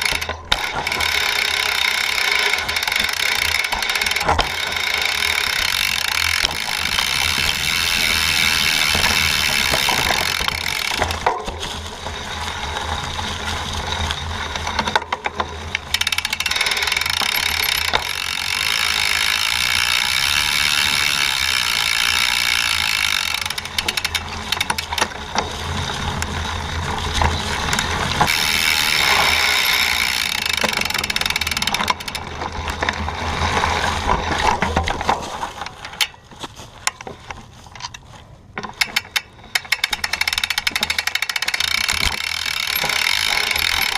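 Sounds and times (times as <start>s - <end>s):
bike chain slap: 0.0s - 11.8s, 15.8s - 25.5s, 27.7s - 32.9s, 38.6s - 43.9s
bike tyres crunching through leaves: 0.0s - 38.6s, 39.4s - 43.9s
bike rattling over bumps: 0.0s - 43.9s.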